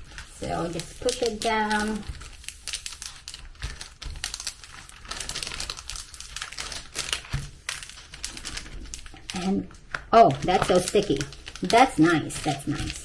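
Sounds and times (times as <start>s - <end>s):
plastic film crackling: 0.0s - 13.0s.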